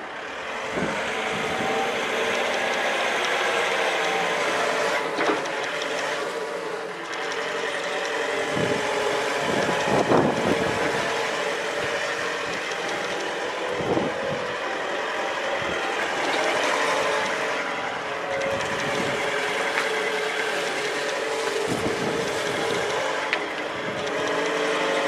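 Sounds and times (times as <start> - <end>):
forklift engine droning: 0.0 - 25.0.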